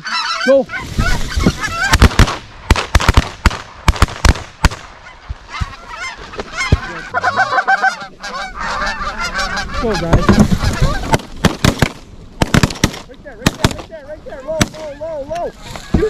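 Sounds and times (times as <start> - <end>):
geese honking: 0.0 - 2.3, 4.9 - 11.4
shotgun blasts: 1.8 - 4.9, 11.1 - 13.8.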